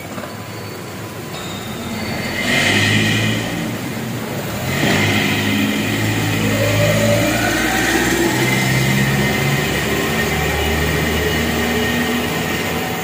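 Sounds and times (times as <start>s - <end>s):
rising motor whine: 1.5s - 13.0s.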